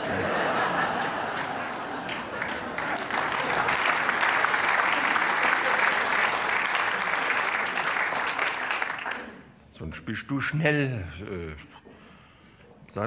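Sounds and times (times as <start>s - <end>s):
audience applauding: 0.6s - 9.5s.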